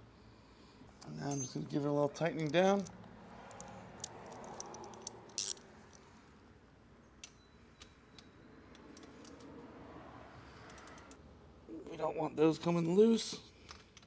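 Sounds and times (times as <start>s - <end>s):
hand tool clicks and scrapes: 2.3s - 6.1s, 7.0s - 9.5s.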